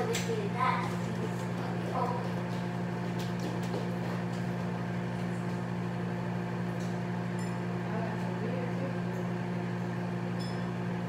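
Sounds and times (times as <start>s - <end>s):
low electrical hum of appliance: 0.0s - 11.0s.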